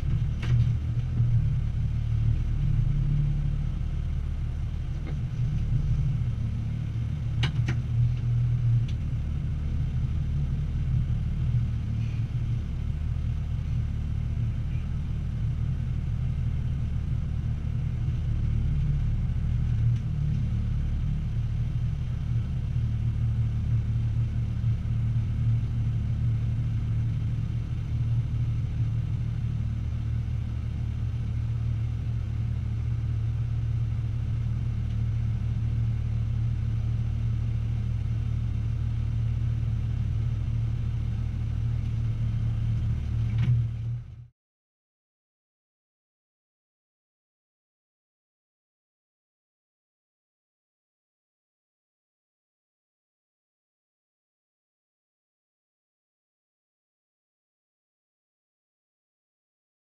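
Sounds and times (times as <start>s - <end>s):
truck diesel engine rumbling: 0.0s - 44.3s.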